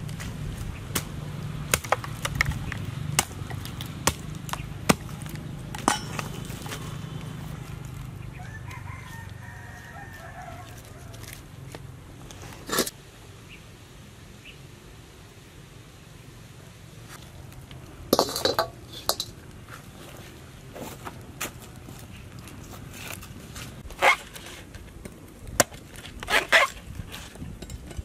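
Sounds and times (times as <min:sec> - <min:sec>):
stick fire crackling: 0:00.0 - 0:08.8, 0:17.0 - 0:28.0
rooster crowing: 0:08.3 - 0:11.4.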